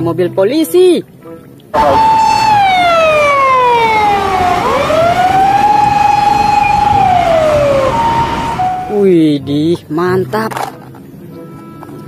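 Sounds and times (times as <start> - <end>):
electronic wail siren: 1.8 - 9.0.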